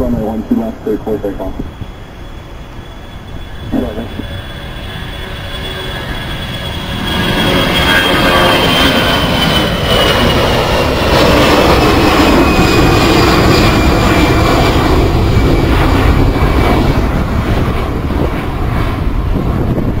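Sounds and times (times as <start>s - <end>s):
jet engines rumbling with high whine: 0.0s - 20.0s.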